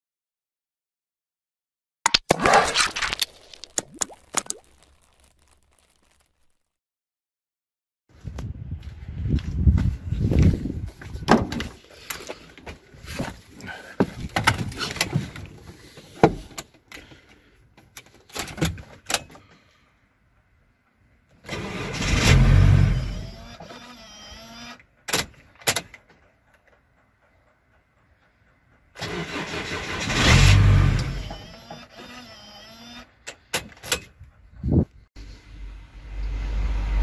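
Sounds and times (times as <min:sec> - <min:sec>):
diesel engine cranking: 0:21.4 - 0:23.4, 0:28.9 - 0:32.0.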